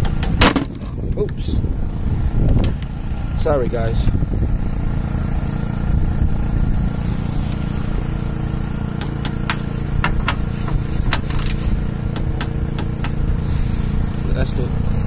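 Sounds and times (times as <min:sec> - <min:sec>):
steady engine hum: 0:00.0 - 0:15.0
torque wrench clicks and knocks: 0:11.1 - 0:13.2.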